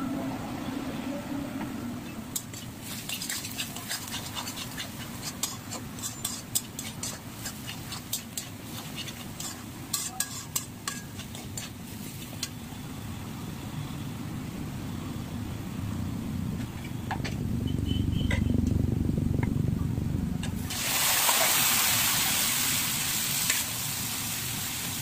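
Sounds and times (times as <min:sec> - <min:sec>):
metal spatula scraping a pan: 0:02.4 - 0:12.5
low rumble: 0:15.4 - 0:20.7.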